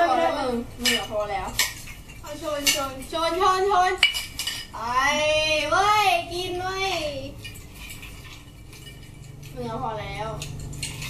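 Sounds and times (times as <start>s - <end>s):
women's voices: 0.0s - 1.6s
drinking glasses clinking: 7.4s - 9.5s.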